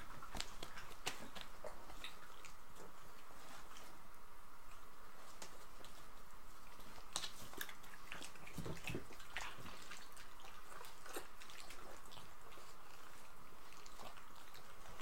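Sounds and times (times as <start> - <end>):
dogs chewing meat: 0.0 - 15.0.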